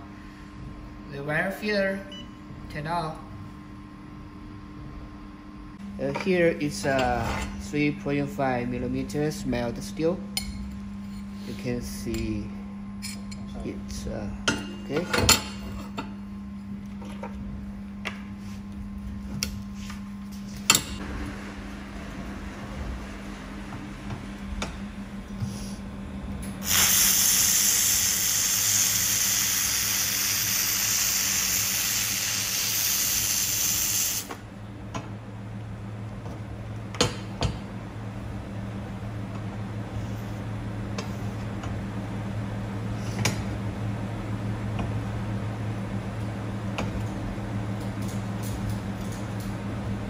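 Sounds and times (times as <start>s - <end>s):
steady low hum: 0.0s - 50.0s
laser welding hiss: 26.6s - 34.3s.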